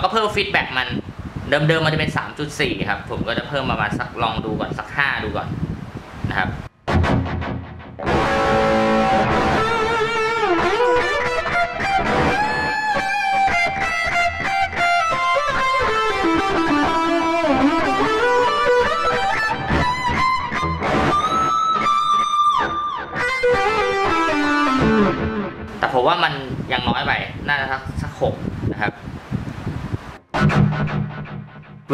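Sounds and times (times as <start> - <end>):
distorted electric guitar solo: 6.9 - 25.8, 30.4 - 31.8.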